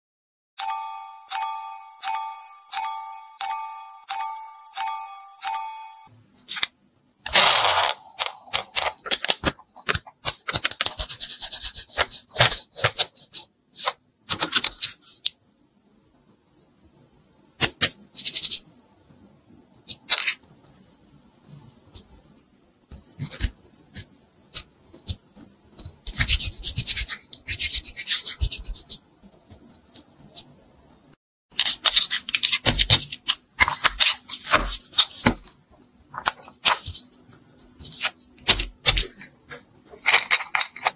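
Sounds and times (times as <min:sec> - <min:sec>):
bright bell-like chime: 0:00.6 - 0:06.1
clay sticky clicks: 0:22.9 - 0:30.6, 0:31.6 - 0:40.9
clay kneaded crackly rustling: 0:31.5 - 0:40.9.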